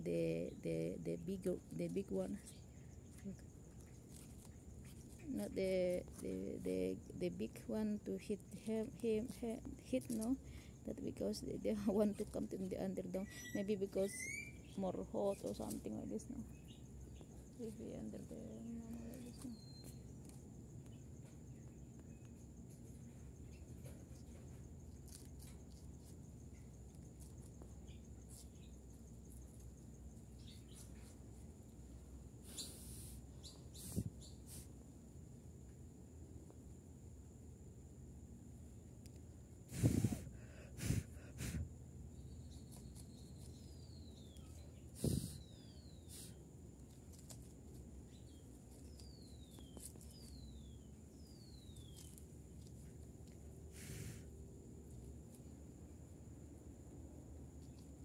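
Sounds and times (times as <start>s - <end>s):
low background hum: 0.0s - 58.0s
faint ticks and rustles: 1.2s - 13.1s, 13.7s - 34.9s, 38.9s - 39.4s, 42.1s - 58.0s
brief hiss: 53.7s - 54.3s.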